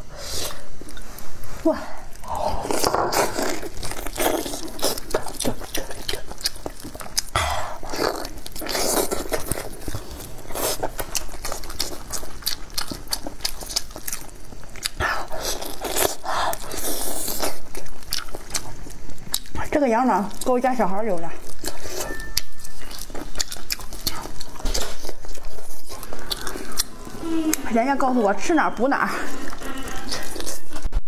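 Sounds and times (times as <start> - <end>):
wet chewing: 2.1 - 31.0.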